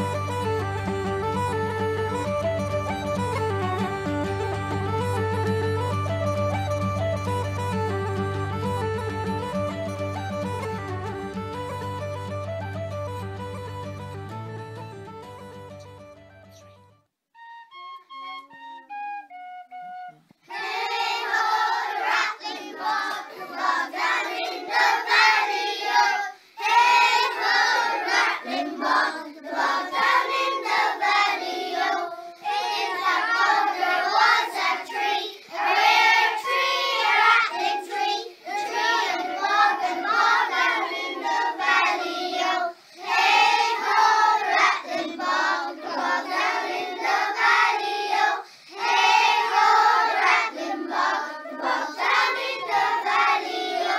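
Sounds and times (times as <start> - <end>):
young children singing together: 20.4 - 53.9.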